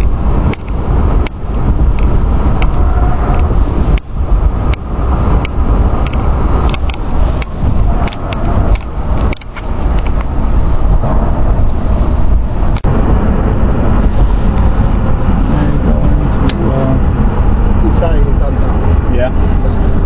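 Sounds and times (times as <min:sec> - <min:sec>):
car engine and road rumble: 0:00.0 - 0:20.0
sharp clicks: 0:05.4 - 0:10.3.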